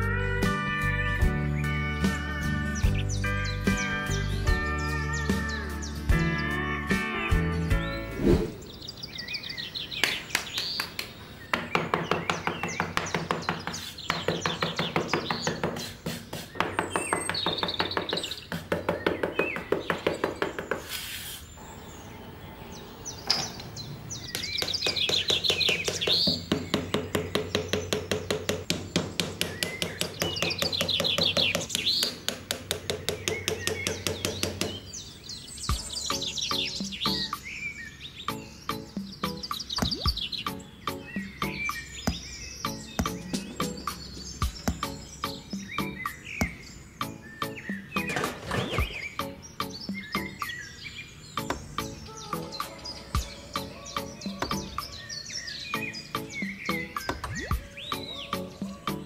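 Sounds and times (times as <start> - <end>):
birds chirping: 0.0 - 59.0
hammer tapping wooden dowels: 10.8 - 20.9, 24.3 - 34.8.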